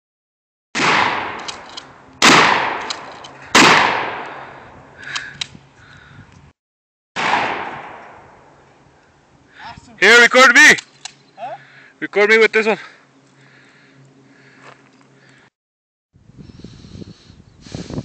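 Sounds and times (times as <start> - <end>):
loud rifle gunshots: 0.8 - 1.6, 2.2 - 4.2, 7.2 - 8.2.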